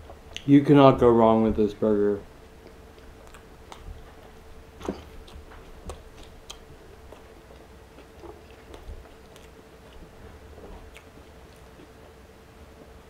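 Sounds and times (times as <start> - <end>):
faint steady hum: 0.0 - 13.0
person chewing food: 2.6 - 12.2.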